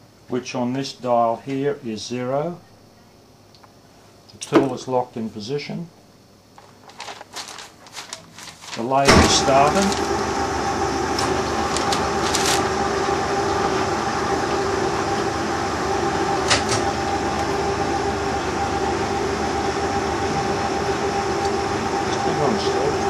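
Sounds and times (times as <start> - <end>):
lathe humming with whine: 8.6 - 23.0.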